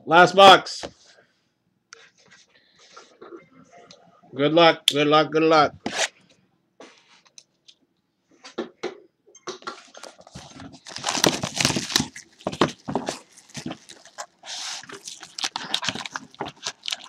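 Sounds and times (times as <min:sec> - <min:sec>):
cellophane wrap tearing and crinkling: 0:10.1 - 0:17.0.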